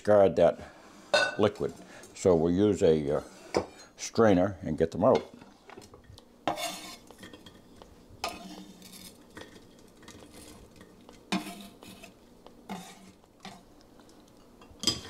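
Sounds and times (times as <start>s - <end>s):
metal utensils scraping a pot: 6.4s - 13.6s.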